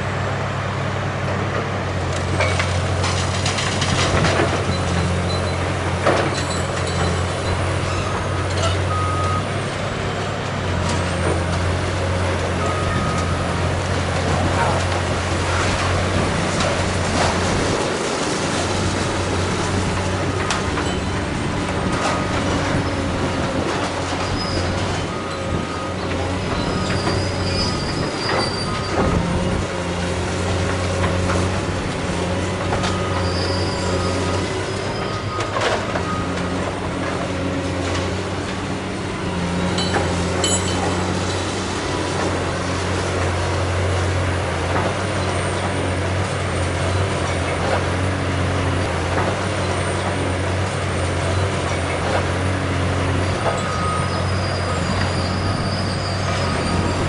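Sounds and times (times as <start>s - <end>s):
diesel excavator running: 0.0s - 57.0s
high metallic squeals: 24.1s - 29.2s, 33.0s - 36.3s, 53.6s - 57.0s.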